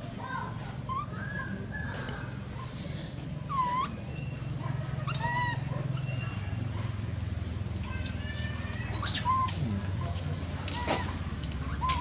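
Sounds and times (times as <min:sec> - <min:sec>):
steady high-pitched whine: 0:00.0 - 0:12.0
baby monkey squealing: 0:00.9 - 0:02.7, 0:03.4 - 0:06.5, 0:08.8 - 0:10.1, 0:10.7 - 0:12.0.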